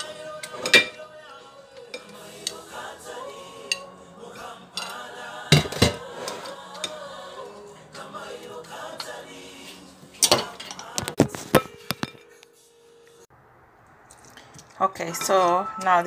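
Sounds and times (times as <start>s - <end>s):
background song: 0.0s - 13.3s
dishes knocking: 5.5s - 6.0s.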